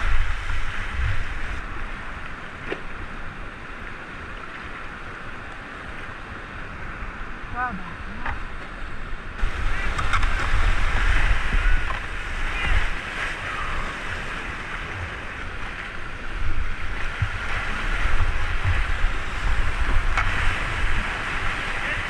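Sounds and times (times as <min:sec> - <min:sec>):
wind buffeting the microphone: 0:00.0 - 0:02.2, 0:09.2 - 0:22.0
whitewater rushing and splashing: 0:00.0 - 0:22.0.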